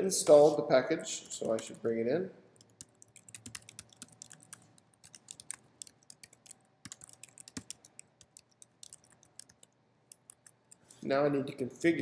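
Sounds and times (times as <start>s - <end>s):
keyboard typing: 1.2s - 1.8s, 2.6s - 10.9s.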